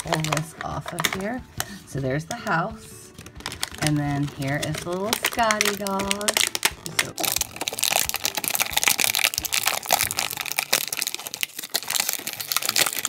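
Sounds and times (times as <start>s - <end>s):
plastic bag crinkling: 0.0s - 1.8s, 3.1s - 13.0s.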